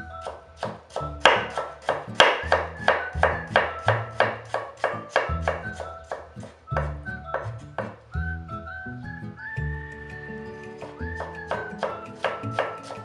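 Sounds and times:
background music: 0:00.0 - 0:13.0
knife chopping on cutting board: 0:00.2 - 0:08.0, 0:10.8 - 0:13.0.

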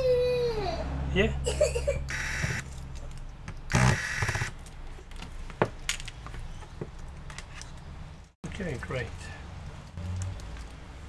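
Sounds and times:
electric screwdriver whirring: 0:02.1 - 0:02.6, 0:03.7 - 0:04.6.

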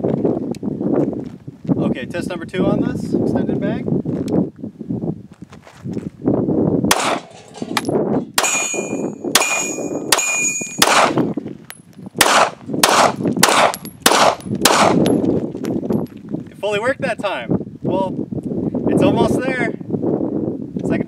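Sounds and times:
pistol shots: 0:06.9 - 0:07.3, 0:08.4 - 0:11.3, 0:12.2 - 0:15.1
metallic ringing: 0:07.2 - 0:10.9.

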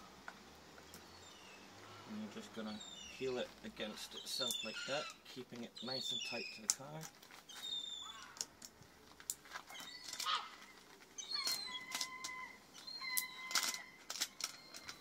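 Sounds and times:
high whistled bird calls: 0:02.7 - 0:03.4, 0:04.0 - 0:05.2, 0:05.8 - 0:06.7, 0:07.5 - 0:08.3, 0:11.2 - 0:15.0.

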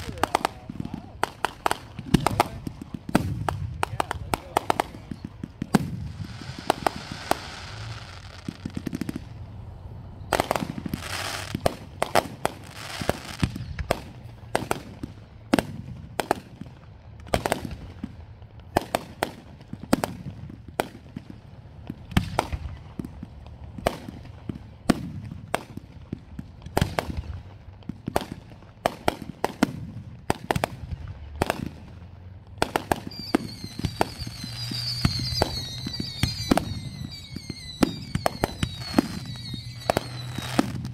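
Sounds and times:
fireworks bursting bangs: 0:00.0 - 0:40.9
fireworks falling whistles: 0:04.6 - 0:09.4, 0:10.2 - 0:14.7, 0:32.6 - 0:40.9.

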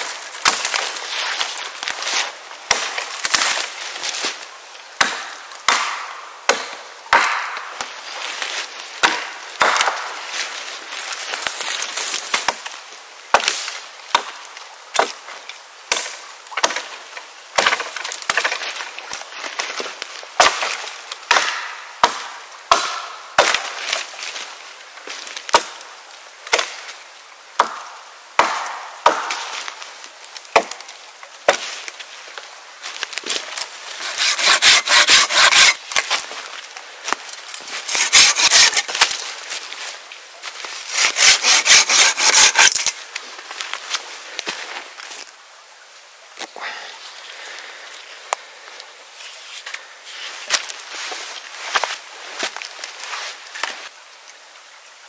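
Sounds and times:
wood splintering rustle: 0:00.0 - 0:04.5, 0:15.0 - 0:21.1, 0:29.0 - 0:45.4
wood chopping strikes: 0:02.7 - 0:03.6, 0:05.0 - 0:07.8, 0:09.0 - 0:10.1, 0:13.3 - 0:14.4, 0:15.9 - 0:16.9, 0:17.6 - 0:18.6, 0:20.4 - 0:23.7, 0:27.6 - 0:29.7, 0:30.5 - 0:30.9, 0:31.5 - 0:31.7, 0:34.0 - 0:36.2, 0:37.8 - 0:39.2, 0:40.9 - 0:43.0.

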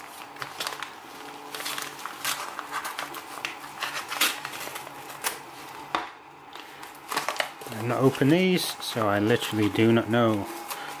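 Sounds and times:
knife slitting plastic bag: 0:00.0 - 0:05.7
plastic bag rustling: 0:00.0 - 0:11.0.

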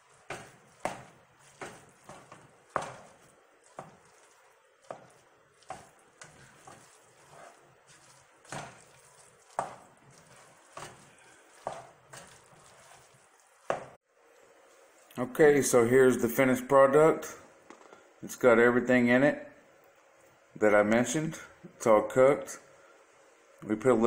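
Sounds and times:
spatula scraping a steel pan: 0:00.0 - 0:13.2.

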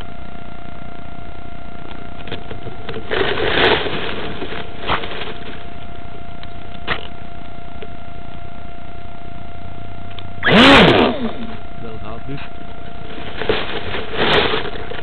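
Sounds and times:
electrical hum and hiss: 0:00.0 - 0:15.0
grass rustling against camera: 0:01.8 - 0:07.4, 0:12.2 - 0:15.0.

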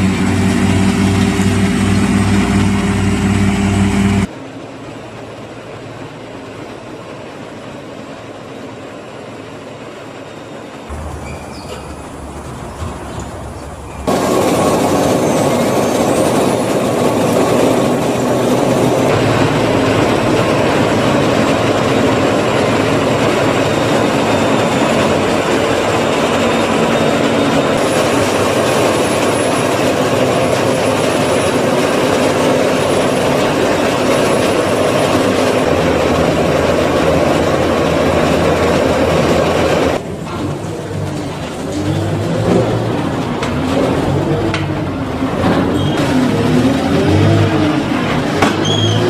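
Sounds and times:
low machine drone: 0:00.0 - 0:49.0
forage wagon conveyor rattling: 0:10.9 - 0:49.0.

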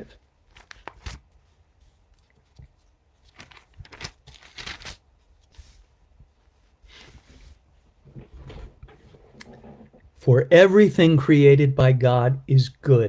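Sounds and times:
paper rustling: 0:00.5 - 0:09.1.

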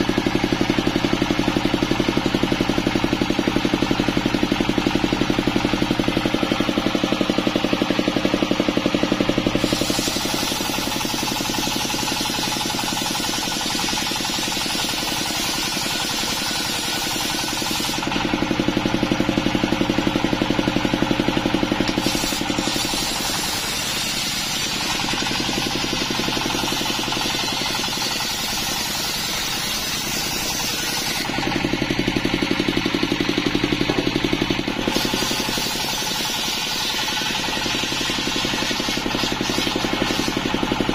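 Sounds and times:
diesel engine running: 0:00.0 - 0:40.9
circular saw ripping wood: 0:21.8 - 0:31.4, 0:34.9 - 0:40.6.

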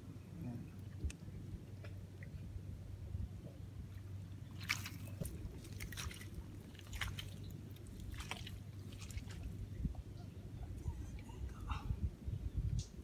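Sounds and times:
low steady rumble: 0:00.0 - 0:13.0
wet mud squelching and popping: 0:04.6 - 0:09.6.

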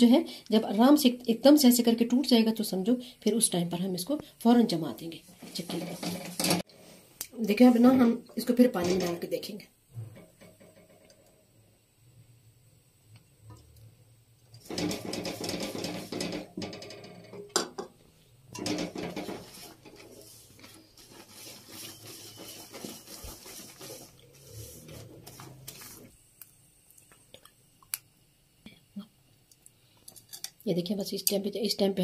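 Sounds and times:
spatula scraping steel pan: 0:05.4 - 0:06.8, 0:14.5 - 0:17.7, 0:18.5 - 0:26.1.

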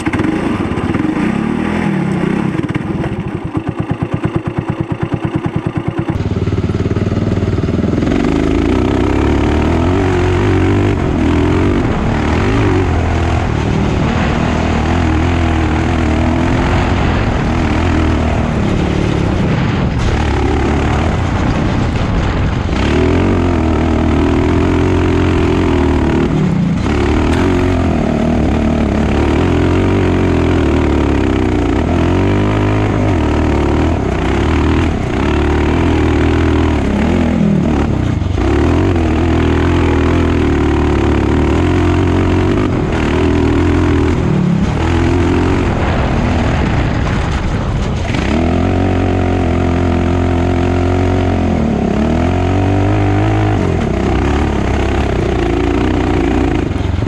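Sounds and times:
buggy engine revving: 0:00.0 - 0:57.0.

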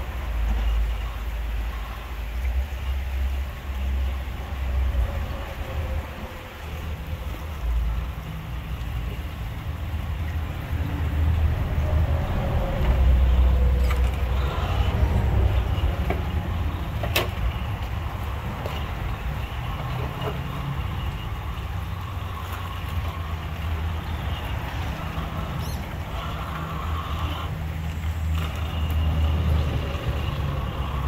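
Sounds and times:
toy car motor running: 0:25.0 - 0:31.0.

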